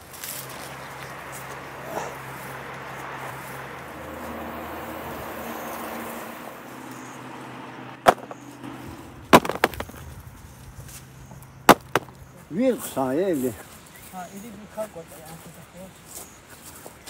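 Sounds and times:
sharp knocks: 0:08.0 - 0:08.4, 0:09.3 - 0:10.0, 0:11.7 - 0:12.2.

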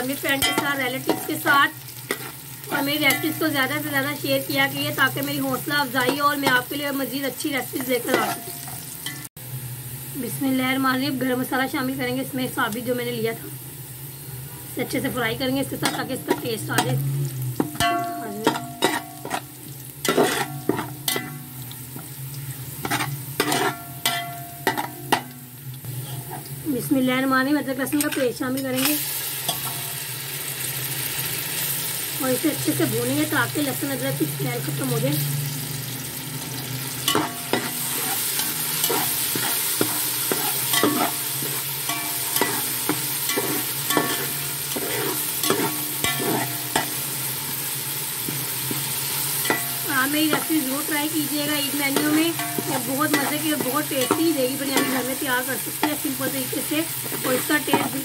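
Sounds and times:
onions sizzling in oil: 0:00.0 - 0:58.0
metal spoon scraping pot: 0:20.1 - 0:21.4, 0:22.8 - 0:24.9, 0:37.1 - 0:46.9.

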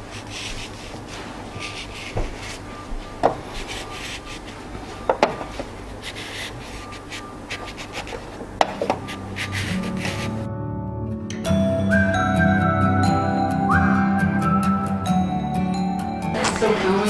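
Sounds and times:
thick fabric rubbing: 0:00.0 - 0:08.4, 0:09.0 - 0:10.5.

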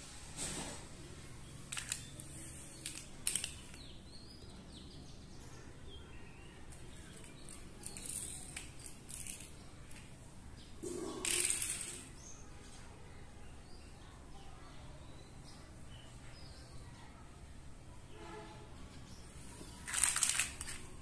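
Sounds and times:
plastic toy clicking on tiles: 0:01.7 - 0:04.0, 0:06.7 - 0:10.1, 0:11.2 - 0:12.2, 0:19.8 - 0:20.9.

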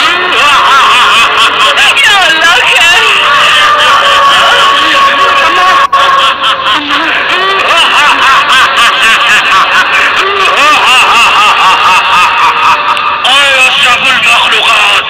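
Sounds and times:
high-pitched snickering laughter: 0:03.1 - 0:13.0.

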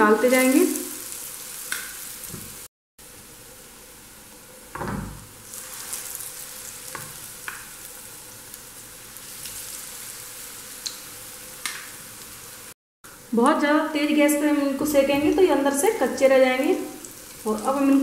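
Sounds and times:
potatoes sizzling in oil: 0:00.0 - 0:18.0.

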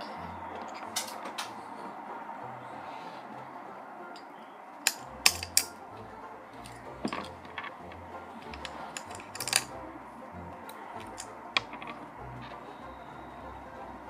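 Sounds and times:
toy pieces clicking and tapping: 0:04.9 - 0:05.8, 0:06.6 - 0:09.8, 0:10.7 - 0:12.6.

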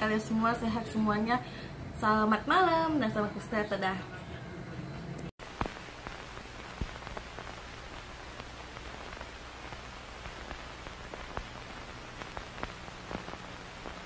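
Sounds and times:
crackling clicks: 0:05.2 - 0:14.0
static hiss: 0:05.4 - 0:14.0.

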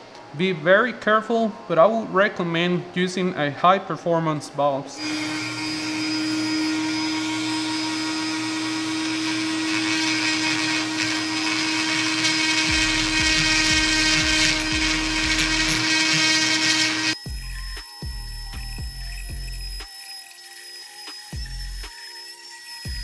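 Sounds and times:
rotary tool grinding metal: 0:05.0 - 0:23.0.

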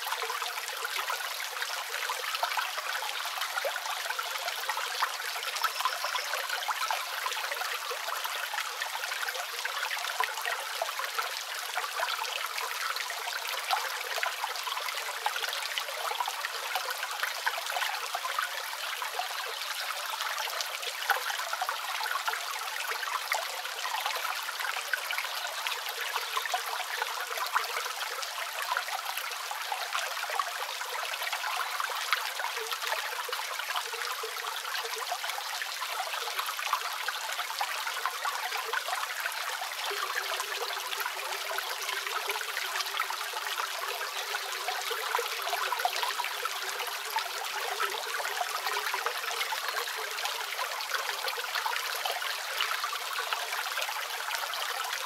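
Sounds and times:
small waterfall splashing: 0:00.0 - 0:55.0.

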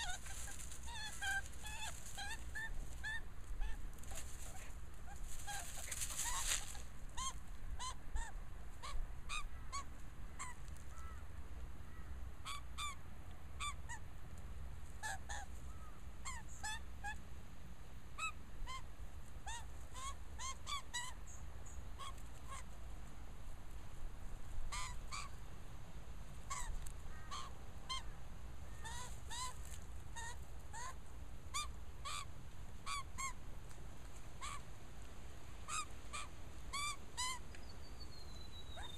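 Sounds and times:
magpie scratchy calls: 0:00.0 - 0:10.6, 0:24.7 - 0:25.3, 0:30.2 - 0:32.3, 0:32.9 - 0:33.4, 0:34.4 - 0:34.6, 0:35.7 - 0:37.4
brief rustle: 0:04.0 - 0:06.9.

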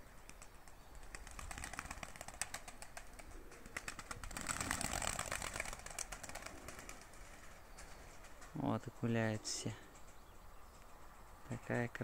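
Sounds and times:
pigeon wings flapping: 0:00.2 - 0:08.6.

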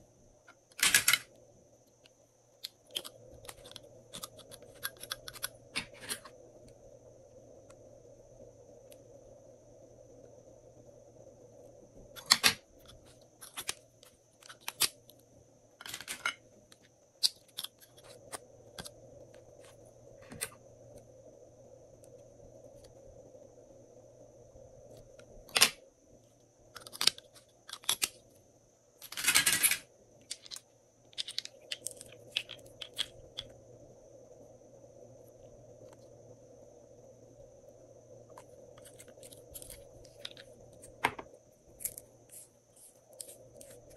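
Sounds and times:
faint steady hum: 0:00.0 - 0:43.9
plastic tubes clicking: 0:29.0 - 0:33.5.

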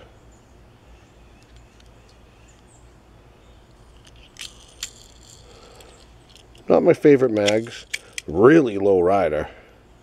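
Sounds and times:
distant bird chirps: 0:00.0 - 0:06.6
toy car clicks: 0:03.9 - 0:06.6, 0:07.3 - 0:08.3.

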